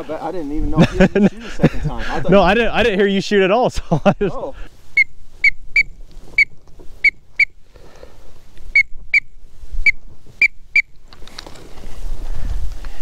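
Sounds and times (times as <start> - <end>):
short high whistled peeps: 4.9 - 7.6, 8.7 - 10.9.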